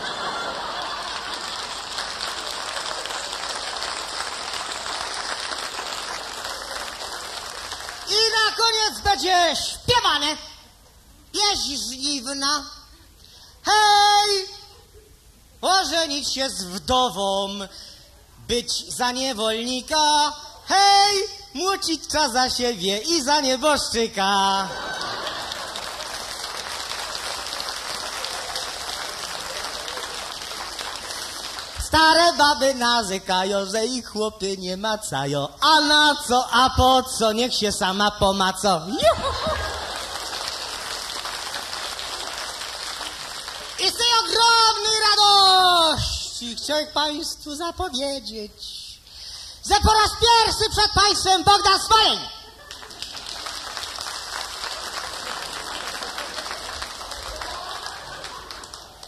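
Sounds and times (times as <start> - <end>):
audience applauding: 0.0 - 8.1, 24.8 - 31.8, 39.3 - 43.8, 52.6 - 59.0.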